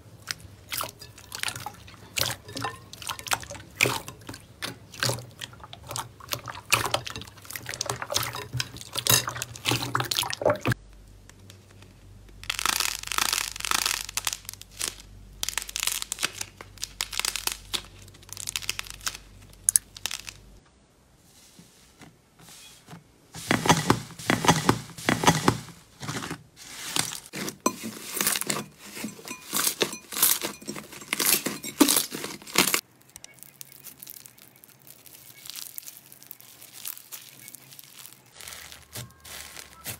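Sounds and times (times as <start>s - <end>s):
slime crackling and popping: 11.4s - 20.6s, 31.2s - 39.9s.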